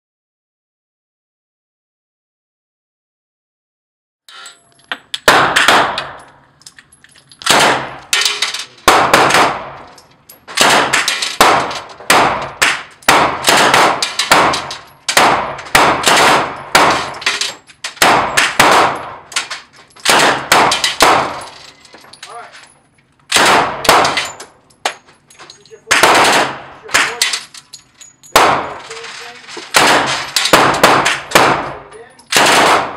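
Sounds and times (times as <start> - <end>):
submachine gun firing bursts indoors: 13.1 - 17.2, 29.7 - 31.7, 32.4 - 32.9.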